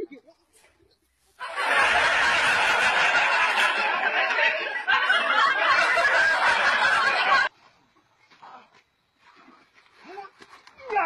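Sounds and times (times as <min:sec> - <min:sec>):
people laughing hard: 0:01.4 - 0:07.5.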